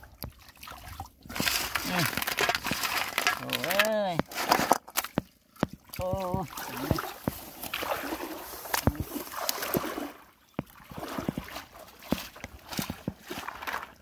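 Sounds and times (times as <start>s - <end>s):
water sloshing and splashing: 0.0s - 14.0s
metal basin pushed through water: 1.3s - 4.8s, 6.5s - 14.0s.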